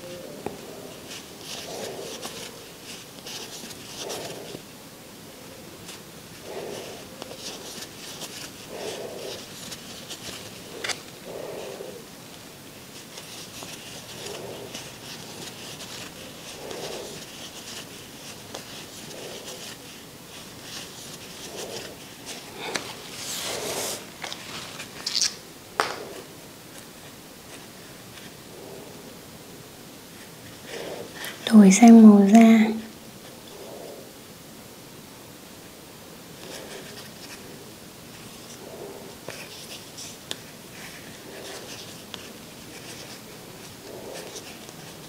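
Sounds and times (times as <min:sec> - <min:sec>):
yarn rustling and scraping: 0:12.9 - 0:29.0.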